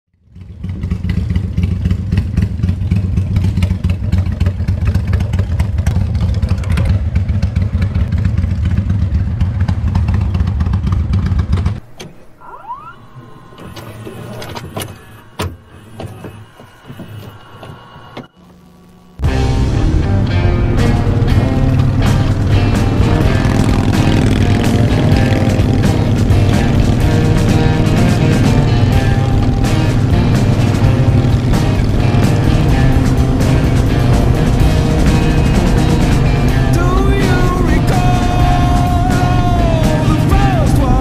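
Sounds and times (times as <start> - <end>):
motorcycle engine idling: 0.2 - 11.8, 19.2 - 41.0
short rising squeak: 11.8 - 18.8.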